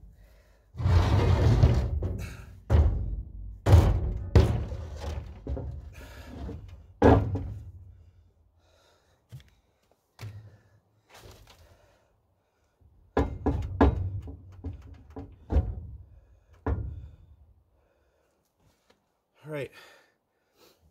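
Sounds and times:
heavy thuds and knocks: 0.8s - 7.8s, 13.1s - 16.0s, 16.6s - 17.2s.

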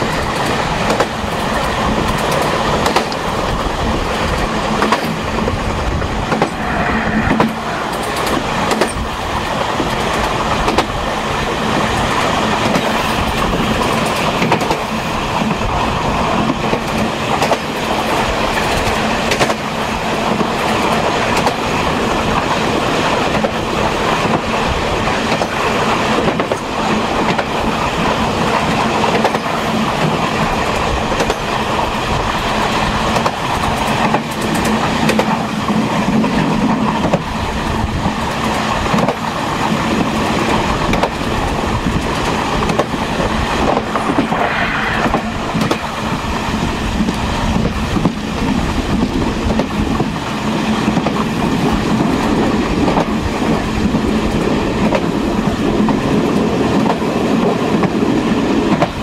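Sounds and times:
wheels clicking over rail joints: 0.0s - 6.4s, 9.6s - 44.0s
train rumbling on rails: 0.0s - 59.0s.

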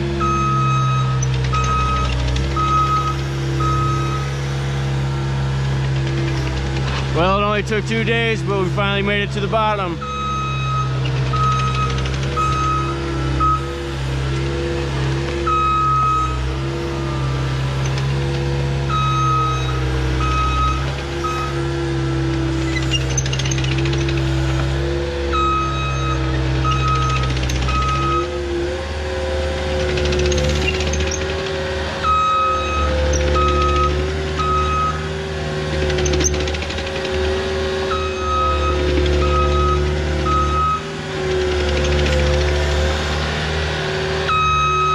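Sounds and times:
heavy machine engine running: 0.0s - 44.9s
backup alarm beeping: 0.2s - 4.3s, 8.7s - 13.8s, 15.5s - 16.5s, 18.9s - 21.6s, 32.1s - 35.0s, 37.9s - 40.9s, 44.3s - 44.9s.

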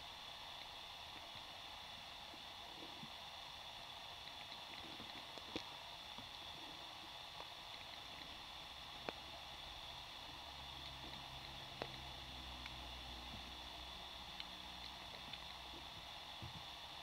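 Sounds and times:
sharp underwater clicks: 10.8s - 12.8s, 14.1s - 15.7s.

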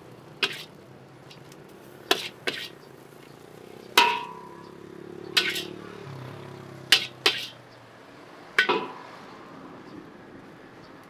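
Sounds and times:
metal spatula clanking on wok: 0.4s - 0.7s, 4.0s - 4.7s, 5.3s - 5.7s, 6.9s - 7.6s, 8.6s - 9.0s.

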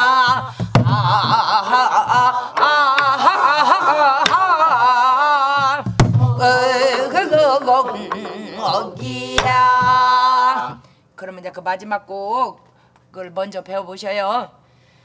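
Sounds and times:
women singing folk song: 0.0s - 11.0s.

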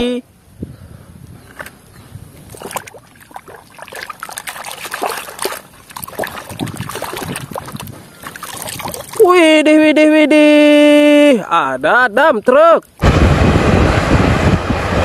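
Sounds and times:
splashing in soapy water: 2.5s - 9.3s.

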